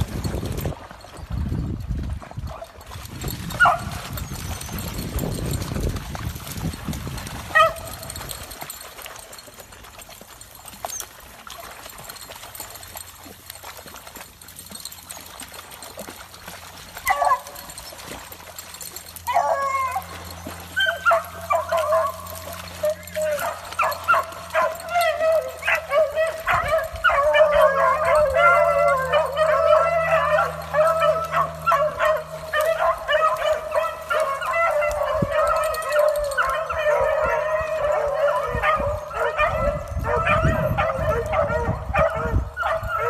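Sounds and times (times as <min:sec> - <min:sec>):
beagles baying: 0:19.3 - 0:39.4.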